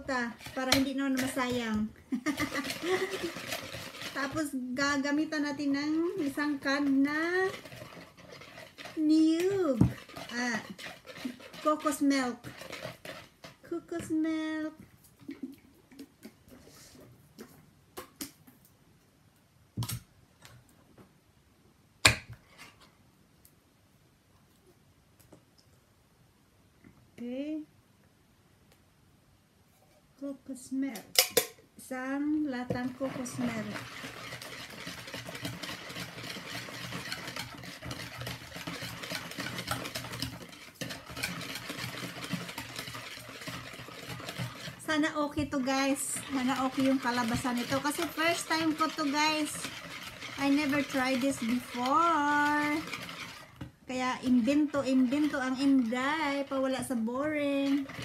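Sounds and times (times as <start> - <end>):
utensil beating mixture in plastic bowl: 0.0 - 18.3, 31.9 - 58.0.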